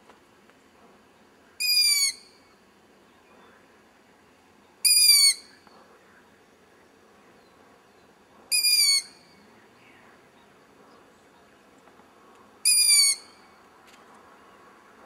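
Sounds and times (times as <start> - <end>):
owl chick screaming: 1.6 - 2.2, 4.9 - 5.5, 8.5 - 9.2, 12.7 - 13.3.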